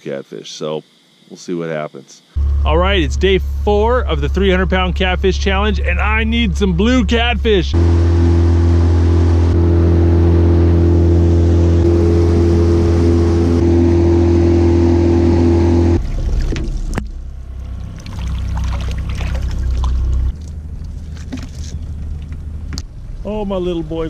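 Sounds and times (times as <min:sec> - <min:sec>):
outboard motor droning: 0:00.9 - 0:24.0
uneven low rumble: 0:02.4 - 0:24.0.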